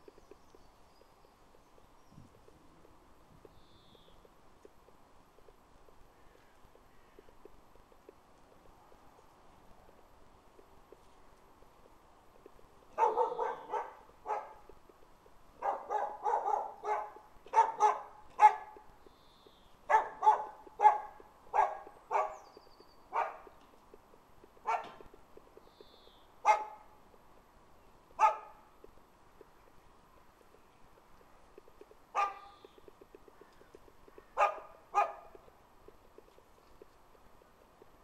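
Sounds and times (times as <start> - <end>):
puppies barking: 12.9 - 14.7, 15.6 - 18.8, 19.9 - 22.4, 23.1 - 23.6, 24.6 - 25.2, 26.4 - 27.0, 28.2 - 28.6, 32.1 - 32.6, 34.2 - 35.4.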